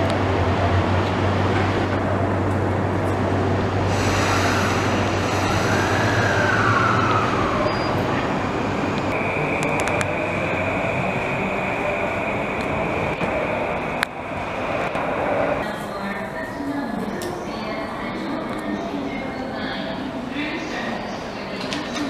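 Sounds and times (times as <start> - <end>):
electric train humming: 0.0 - 19.5
steady high tone: 4.0 - 14.7.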